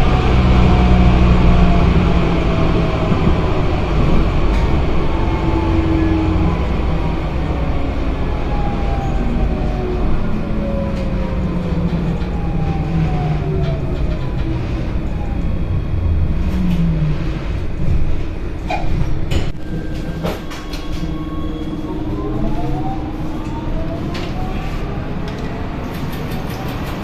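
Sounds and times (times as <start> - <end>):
tram wheels rumbling on rails: 0.0 - 27.0
motor whine: 19.6 - 25.9
sharp clicks: 25.3 - 27.0.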